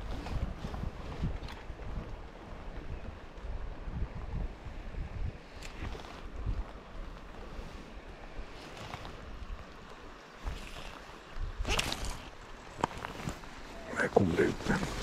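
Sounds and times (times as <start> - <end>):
wind buffeting microphone: 0.0 - 13.8
river water rushing: 7.3 - 15.0.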